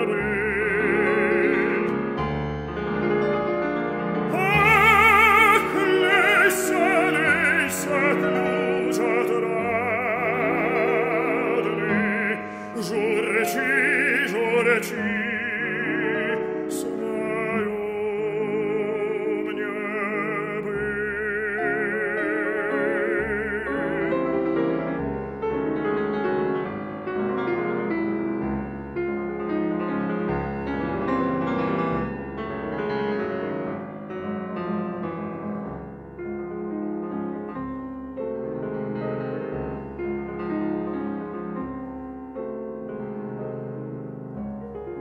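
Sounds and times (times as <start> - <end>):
baritone singing operatically: 0.0 - 2.2, 4.3 - 24.9
piano accompaniment: 0.0 - 45.0.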